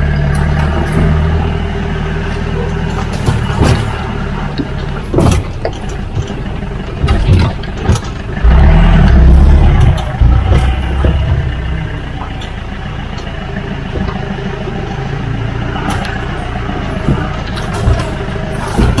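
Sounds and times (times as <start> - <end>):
vehicle engine rumbling: 0.0 - 19.0
vehicle thumps: 2.9 - 8.6, 9.6 - 12.5, 16.9 - 19.0.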